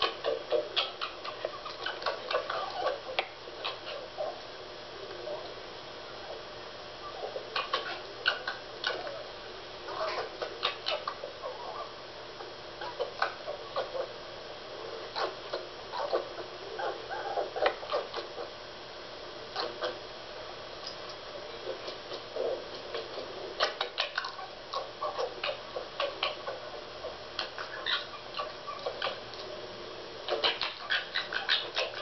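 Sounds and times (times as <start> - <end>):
animal chattering and clicking: 0.0 - 4.0, 7.5 - 9.2, 9.9 - 11.2, 21.7 - 26.6, 27.4 - 29.5, 30.3 - 32.0.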